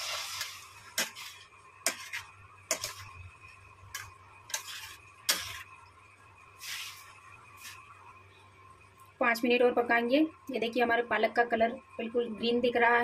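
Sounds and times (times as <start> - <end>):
soft scraping in pan: 0.0 - 5.8, 6.6 - 8.0.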